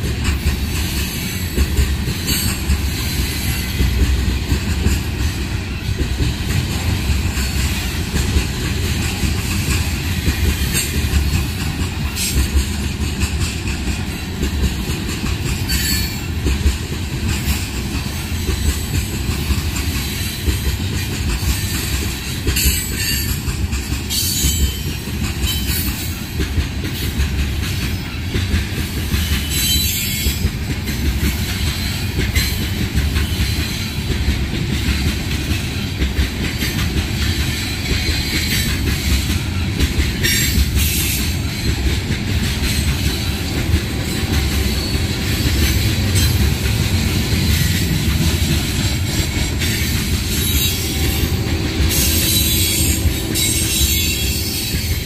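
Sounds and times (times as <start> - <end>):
train wheels rumbling on rail: 0.0 - 55.0
high wheel squeals: 49.6 - 55.0.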